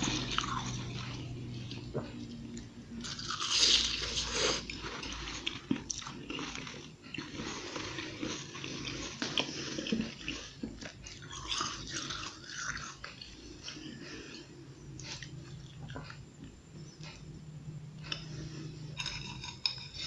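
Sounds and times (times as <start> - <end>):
crunching and chewing ice: 0.0 - 1.9, 2.6 - 13.9, 18.1 - 20.0.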